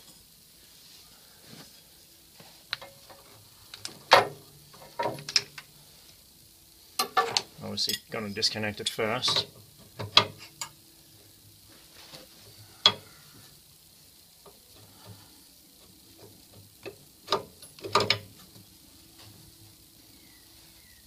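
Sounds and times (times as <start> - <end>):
spanners clinking on pipe fittings: 7.0 - 10.8.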